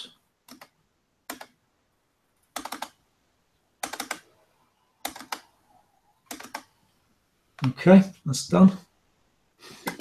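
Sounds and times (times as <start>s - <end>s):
computer keyboard typing: 0.4s - 1.6s, 2.5s - 3.0s, 3.8s - 4.3s, 5.0s - 5.5s, 6.2s - 6.8s, 9.8s - 10.0s.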